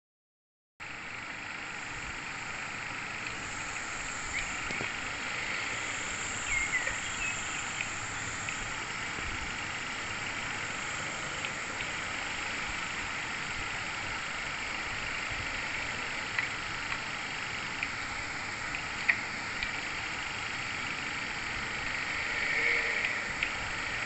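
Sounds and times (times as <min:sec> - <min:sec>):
insect chorus: 0:01.6 - 0:24.0
short chirping calls: 0:06.3 - 0:08.4.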